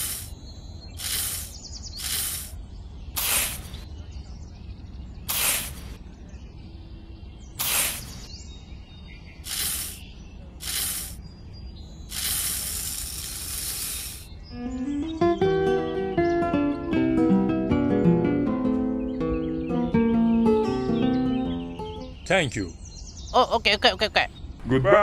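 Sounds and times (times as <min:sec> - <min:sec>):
short hisses: 0:00.0 - 0:00.4, 0:01.0 - 0:02.6, 0:03.2 - 0:03.8, 0:05.3 - 0:06.0, 0:07.6 - 0:08.3, 0:09.5 - 0:11.2, 0:12.1 - 0:14.3.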